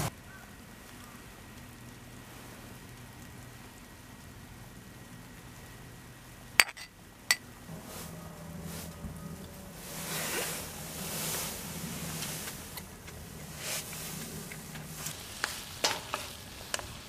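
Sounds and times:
metal tableware clinking: 6.6 - 6.9
soft rushing noise: 7.6 - 17.0.

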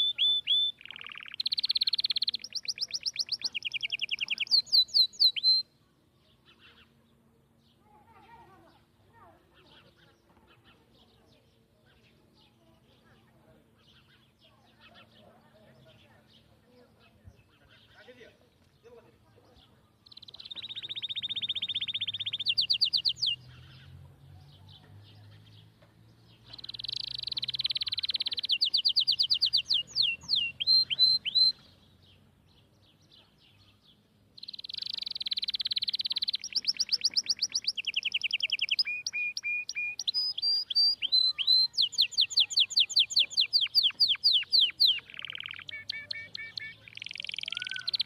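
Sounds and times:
songbird trilling: 0.0 - 5.7, 20.0 - 24.0, 26.4 - 31.8, 32.6 - 48.0.

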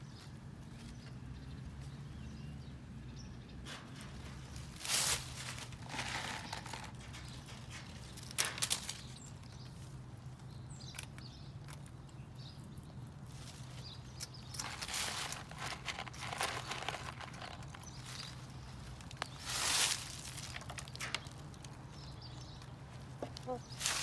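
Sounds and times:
rustling in dry dirt and leaves: 3.6 - 24.0.

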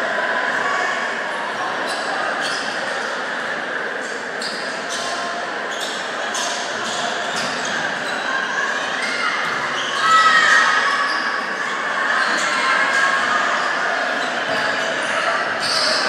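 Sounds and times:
murmur of crowd voices: 0.0 - 16.0.

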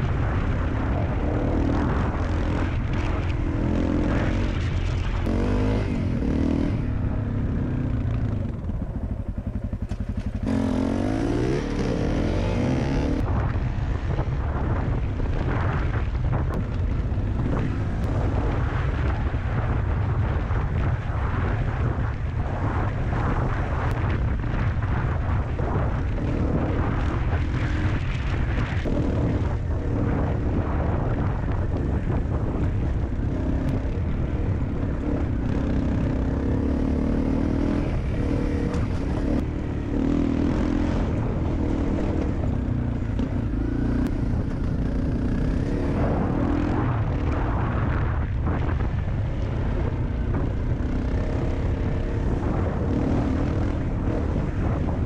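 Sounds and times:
motorcycle engine running: 0.0 - 55.0
wind rumble on microphone: 0.0 - 55.0.

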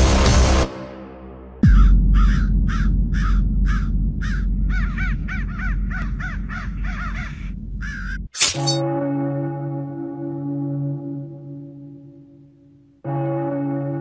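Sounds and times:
crows cawing: 1.6 - 8.3.

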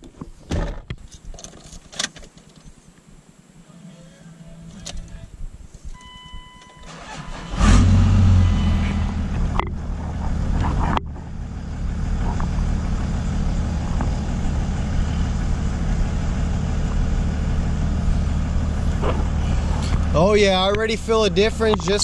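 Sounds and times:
diesel engine starting and idling: 6.0 - 22.0.

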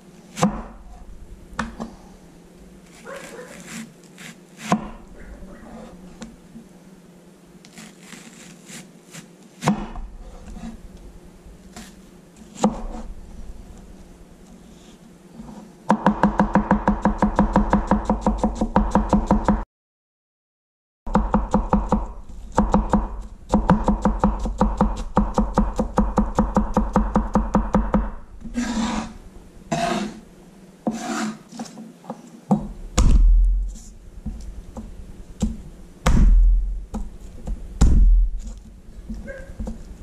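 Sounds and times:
knife chopping on wooden board: 3.0 - 5.0, 7.7 - 10.1, 12.6 - 13.1, 15.9 - 19.6, 21.1 - 29.1
dull thumps of crushing: 32.5 - 40.0.

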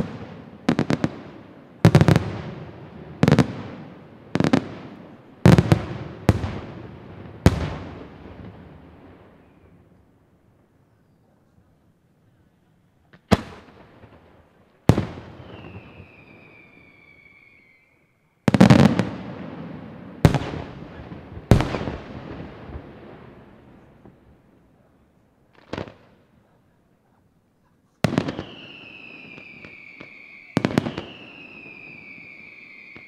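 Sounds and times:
high falling whistle: 15.4 - 18.4, 28.4 - 33.0.

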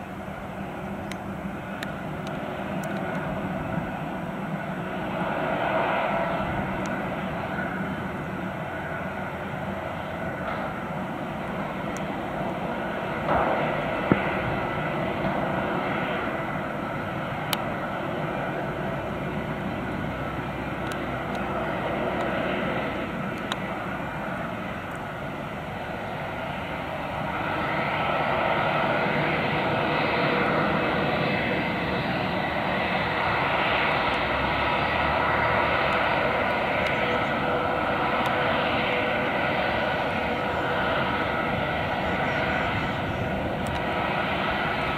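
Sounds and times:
jet engines at taxi power: 0.0 - 44.9.

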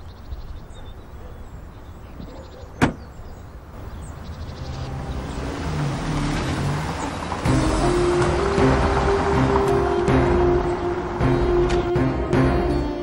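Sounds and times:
car engine and tyres approaching: 3.5 - 13.0.

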